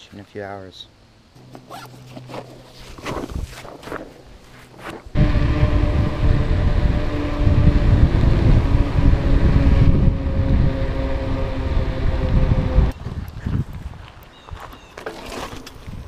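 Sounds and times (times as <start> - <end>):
tyre noise on asphalt: 1.4 - 16.0
wind buffeting microphone: 5.1 - 14.7.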